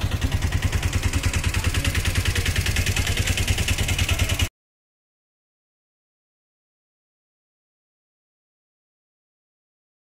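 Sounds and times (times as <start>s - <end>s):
auto-rickshaw engine idling: 0.0s - 4.5s.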